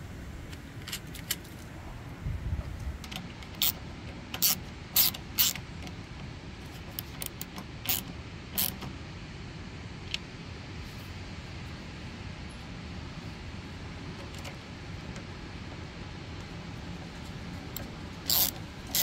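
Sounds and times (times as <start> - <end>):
ratchet wrench clicking: 3.0 - 5.6, 6.9 - 8.9, 17.8 - 19.0.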